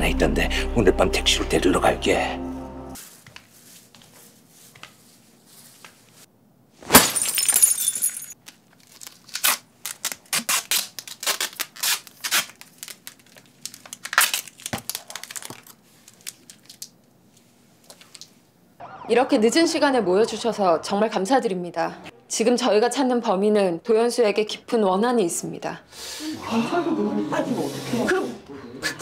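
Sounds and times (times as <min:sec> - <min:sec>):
crinkly sheet rustling: 0:08.4 - 0:18.4.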